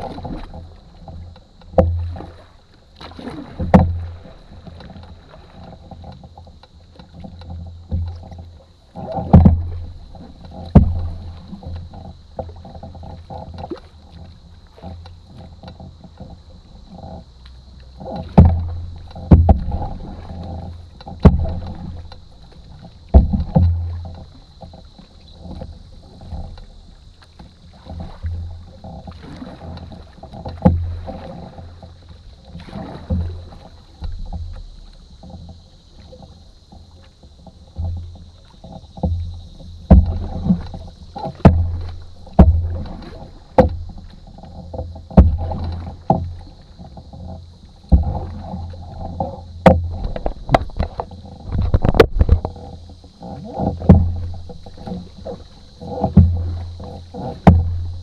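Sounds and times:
paddle knocking against hull: 0.0 - 58.0
water rumbling along boat: 0.0 - 58.0.

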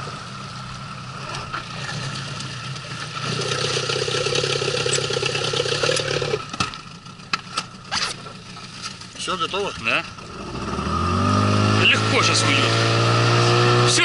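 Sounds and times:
outboard motor running: 1.1 - 9.2.

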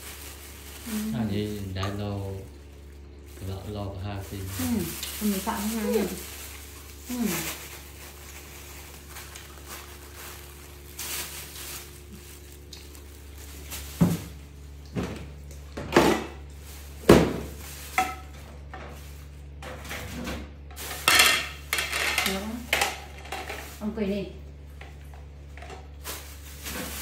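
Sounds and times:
steady low hum: 0.0 - 27.0
utensils and plastic dishes clattering: 17.1 - 24.0, 24.8 - 27.0.

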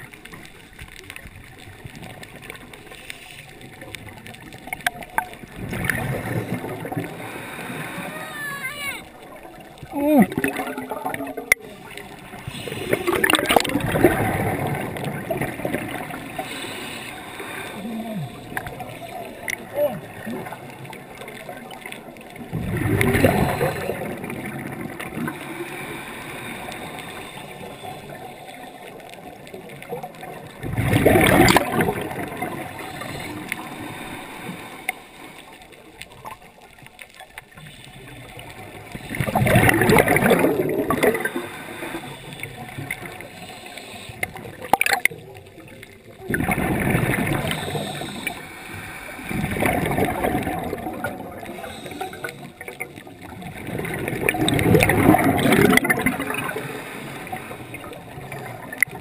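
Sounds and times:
underwater bubbles rushing: 0.0 - 59.0
low hiss: 47.0 - 50.2.

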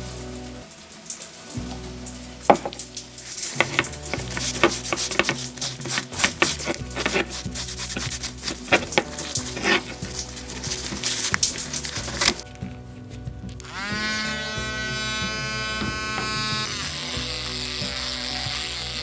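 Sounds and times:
background music: 0.0 - 19.0
hand rubbing cast-iron mill: 2.5 - 17.2.

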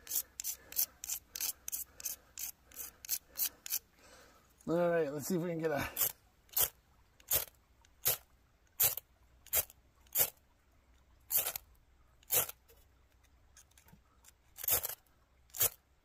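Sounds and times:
metal striker scraping fire rod: 0.0 - 3.8, 14.6 - 15.8.

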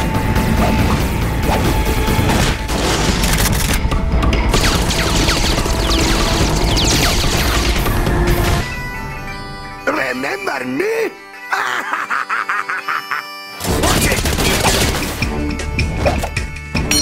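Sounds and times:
dramatic music: 0.0 - 17.0
rapid gunfire and impacts: 0.7 - 8.7, 13.6 - 15.3.

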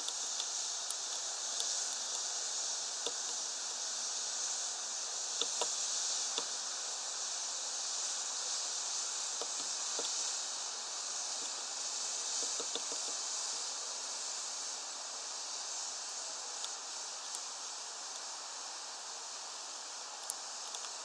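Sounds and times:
steady high hiss: 0.0 - 21.0.

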